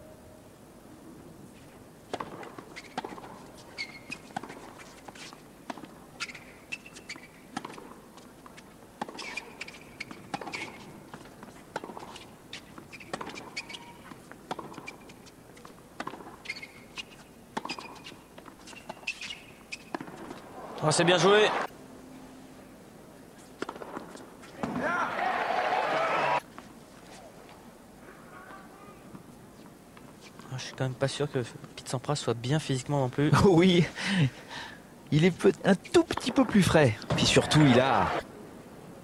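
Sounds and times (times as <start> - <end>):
tennis ball hit by rackets: 2.1 - 6.5, 7.5 - 8.0, 9.0 - 16.8, 17.6 - 20.5, 23.6 - 24.9
tennis ball bouncing on court: 2.1 - 20.5, 23.6 - 24.9.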